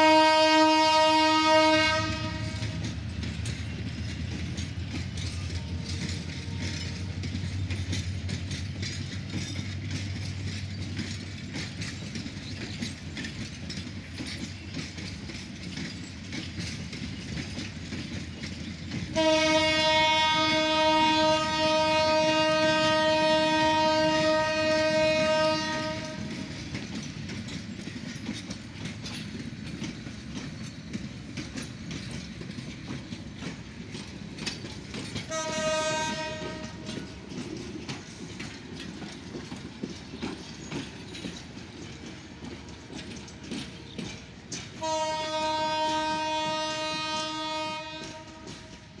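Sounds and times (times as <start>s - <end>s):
train horn blasts: 0.0s - 2.9s, 19.1s - 26.5s, 35.3s - 37.0s, 44.8s - 49.0s
train wheels clickety-clack: 0.0s - 49.0s.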